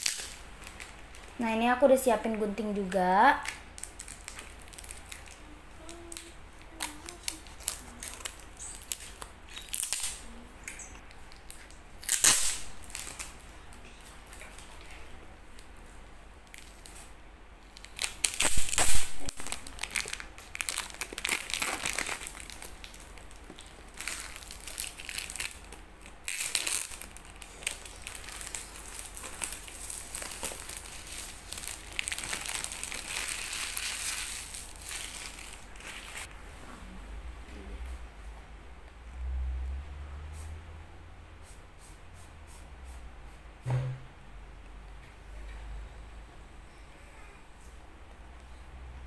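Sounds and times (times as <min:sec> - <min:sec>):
plastic wrap crinkling: 0:00.0 - 0:15.7, 0:17.7 - 0:36.3.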